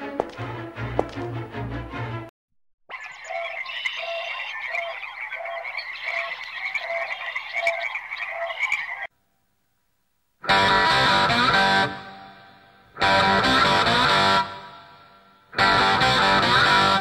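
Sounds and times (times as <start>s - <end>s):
music: 0.0s - 2.3s, 10.4s - 17.0s
dense steady chirping: 2.9s - 9.1s
frogs croaking: 2.9s - 9.1s.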